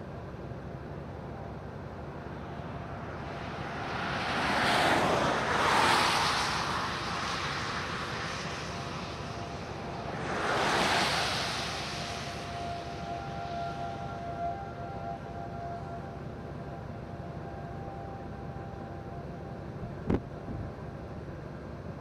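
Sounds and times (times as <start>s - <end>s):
low road hum: 0.0s - 22.0s
cars passing on wet road: 1.7s - 15.6s.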